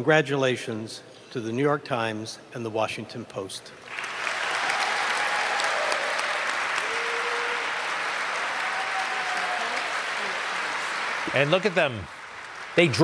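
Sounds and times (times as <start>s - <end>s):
audience applauding: 3.9s - 13.0s.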